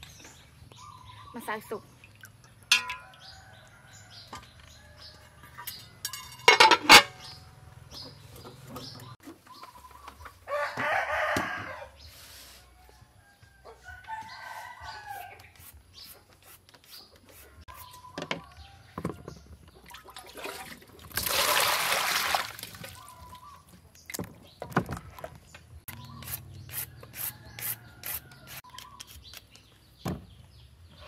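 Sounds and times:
metal lid clattering on pot: 0:06.0 - 0:07.2
rooster crowing: 0:10.5 - 0:12.0.

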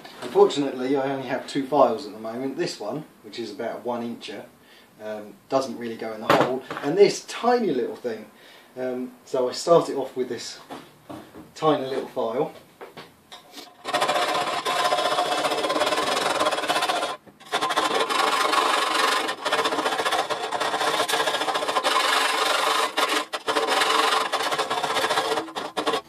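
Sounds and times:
file scraping metal: 0:13.4 - 0:26.0.

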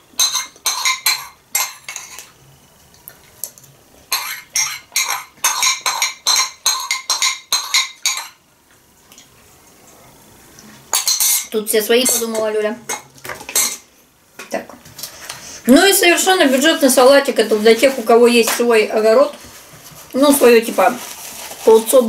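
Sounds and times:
spoon clinking on ceramic bowl: 0:00.2 - 0:02.3, 0:04.1 - 0:08.4.

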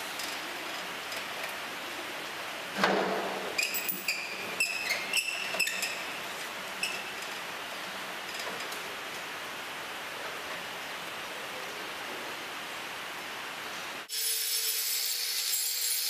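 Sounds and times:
steady background hiss: 0:00.0 - 0:16.0
heavy thump on steel: 0:02.8 - 0:03.5.

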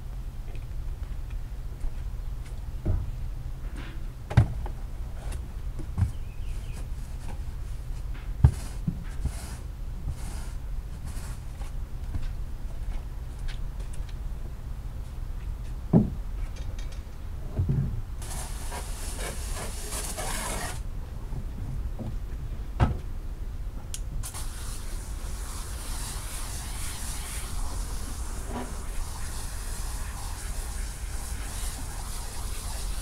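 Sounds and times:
water jet spraying rug: 0:18.2 - 0:20.8, 0:24.2 - 0:33.0.

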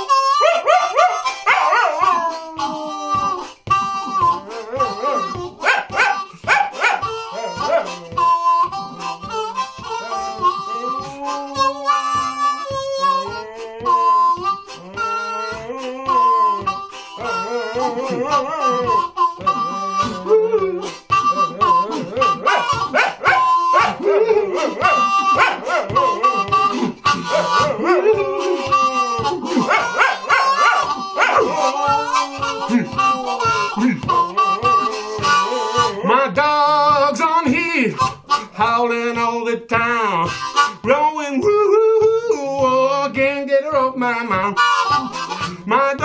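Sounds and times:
harmonica blues chords: 0:00.0 - 0:46.0
dog howling: 0:00.3 - 0:09.1, 0:09.8 - 0:36.2.

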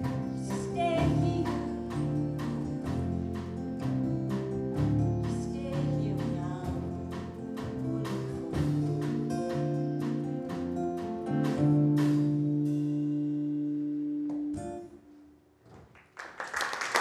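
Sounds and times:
band with acoustic guitar: 0:00.0 - 0:15.9
audience applause: 0:15.9 - 0:17.0.

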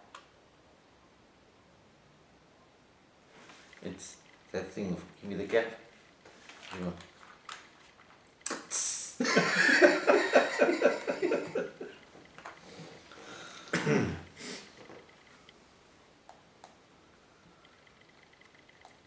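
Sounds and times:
men laughing hard: 0:09.2 - 0:12.0.

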